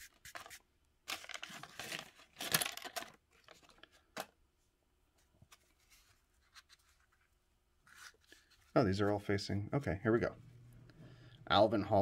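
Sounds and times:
paper crinkling and scraping: 0:00.0 - 0:04.1, 0:05.4 - 0:09.2.

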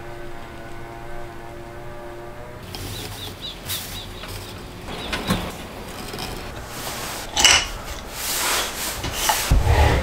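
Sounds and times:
rubbing and scraping: 0:02.6 - 0:10.0.

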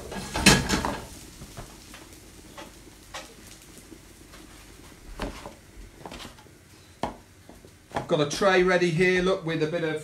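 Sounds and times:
bread frying in oil: 0:00.0 - 0:10.0
light knocks on pan: 0:07.0 - 0:08.1.

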